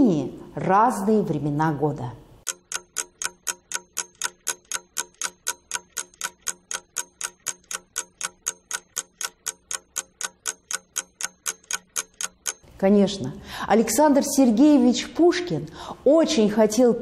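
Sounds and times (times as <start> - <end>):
clock ticking: 2.4 - 12.8.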